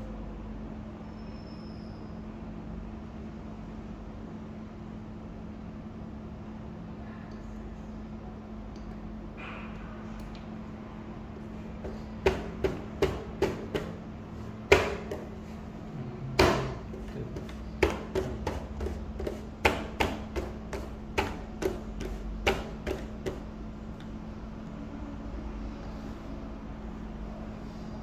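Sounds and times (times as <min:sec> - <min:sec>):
steady low hum: 0:02.5 - 0:28.0
louder knocks: 0:11.8 - 0:14.0, 0:14.7 - 0:15.3, 0:16.4 - 0:23.5.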